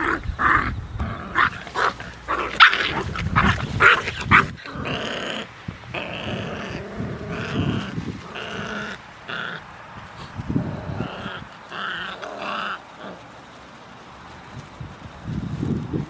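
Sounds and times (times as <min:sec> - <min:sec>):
puppies growling and squealing: 0:00.0 - 0:09.8, 0:10.5 - 0:13.3.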